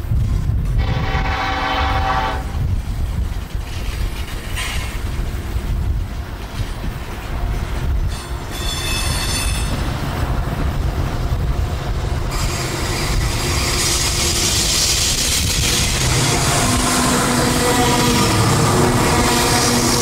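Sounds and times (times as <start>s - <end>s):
freight train wheels rumbling: 0.0s - 20.0s
train wheels squealing: 8.0s - 9.9s, 12.3s - 20.0s.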